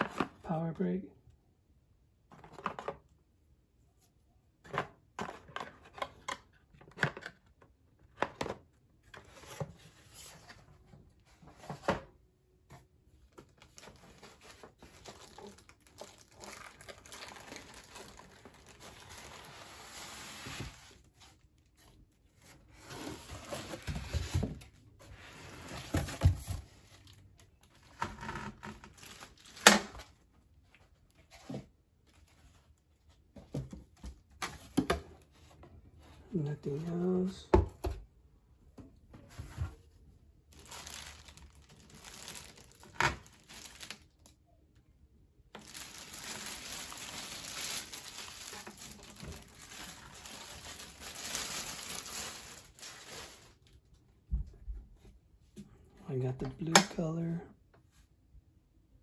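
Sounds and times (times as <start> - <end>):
plastic wrap crinkling: 13.4 - 21.1, 28.8 - 30.0, 40.5 - 44.3, 45.6 - 53.8.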